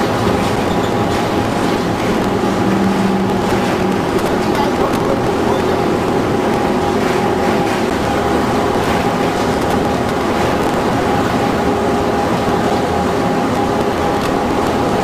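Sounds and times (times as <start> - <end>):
belt conveyor: 0.0 - 15.0.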